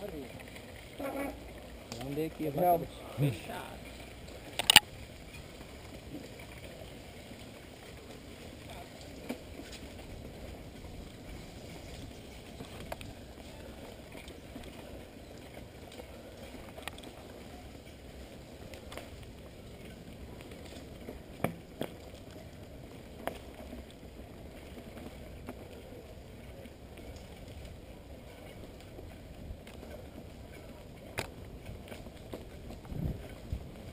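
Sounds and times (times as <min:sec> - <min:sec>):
bike tyres rumbling on dirt: 0:00.0 - 0:33.9
wind on microphone: 0:31.5 - 0:33.9.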